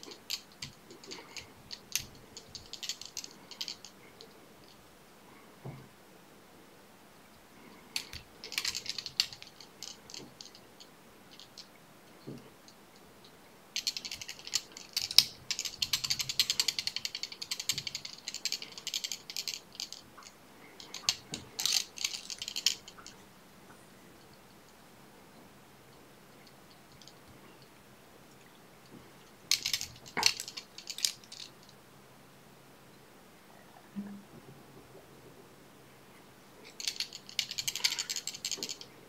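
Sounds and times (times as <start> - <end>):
fly-tying tools clicking: 0.0 - 4.0, 13.8 - 23.1.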